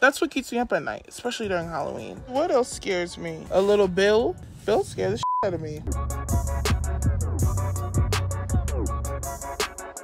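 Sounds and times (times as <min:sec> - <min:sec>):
deep bass line: 0:04.1 - 0:09.6.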